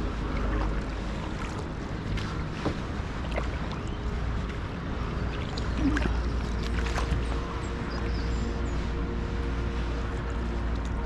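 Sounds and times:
water splashing and dripping: 0.0 - 8.1.

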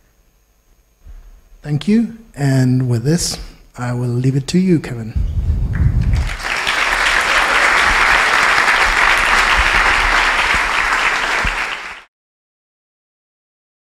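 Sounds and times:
audience applauding: 6.0 - 12.1.

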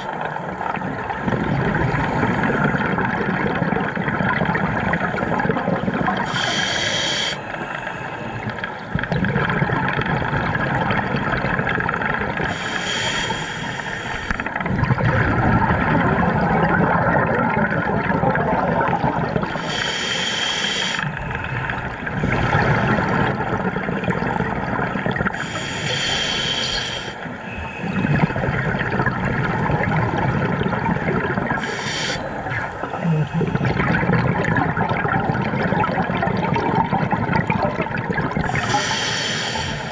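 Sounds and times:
exhalation bubbles gurgling: 0.0 - 13.1, 14.3 - 19.8, 21.1 - 25.9, 27.4 - 39.9
regulator inhalation hiss: 6.2 - 8.4, 12.5 - 14.4, 19.6 - 21.2, 25.4 - 27.2, 31.6 - 32.4, 38.4 - 39.9.

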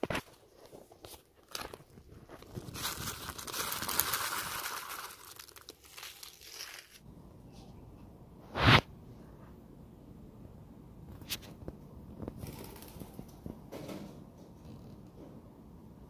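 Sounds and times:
crinkling rustling: 0.0 - 7.0.

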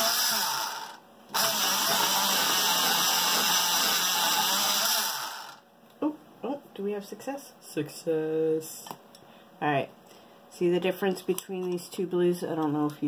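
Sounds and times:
electric pencil sharpener running: 0.0 - 5.6.

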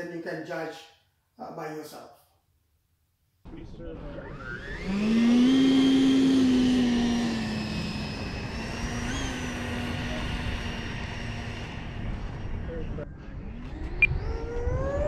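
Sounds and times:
electric jet fan whine: 3.5 - 15.0.

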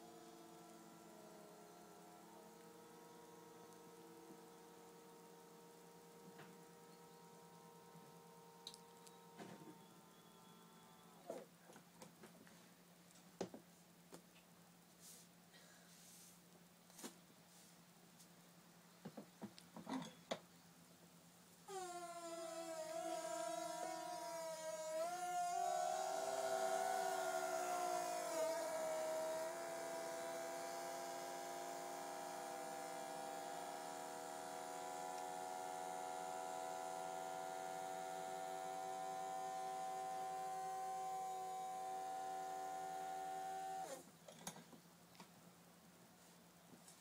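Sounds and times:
eerie multi-tone appliance whine: 0.0 - 11.3, 21.7 - 44.0.

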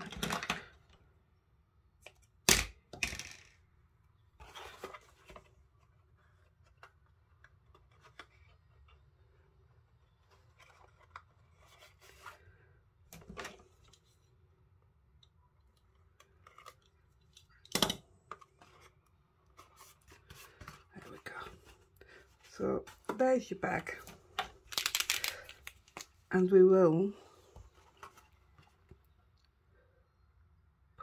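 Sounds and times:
paper and card rustling: 4.4 - 9.2, 10.1 - 12.6, 18.3 - 26.3, 27.3 - 29.0
tape tearing: 24.7 - 26.1.

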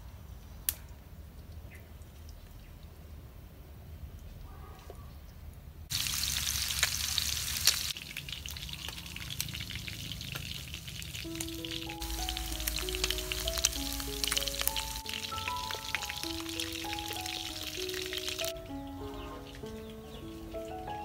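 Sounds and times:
meat sizzling in hot oil: 5.9 - 18.6
simple melody of held notes: 11.2 - 21.0.

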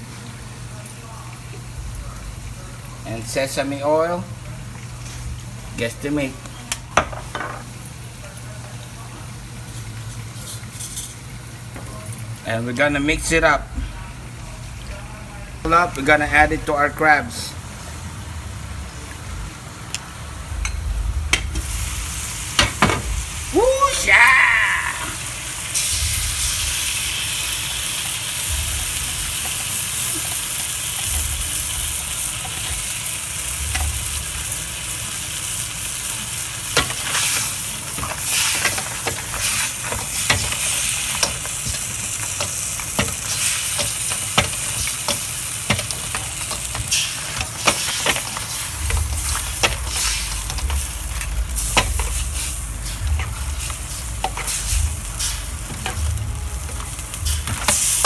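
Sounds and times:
crabs sizzling in a wok: 0.0 - 58.0
ladle and shells clacking on pan: 36.7 - 52.4.

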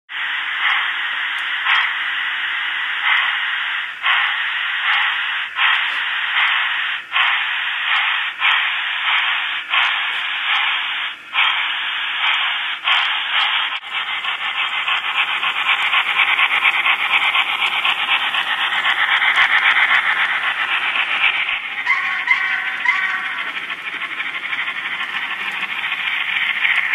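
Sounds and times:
model steam locomotive exhaust hiss: 0.1 - 26.9.

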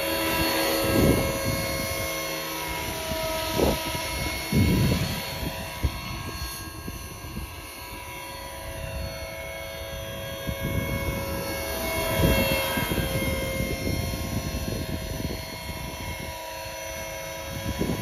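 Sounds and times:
rc helicopter motor whine: 0.0 - 18.0.

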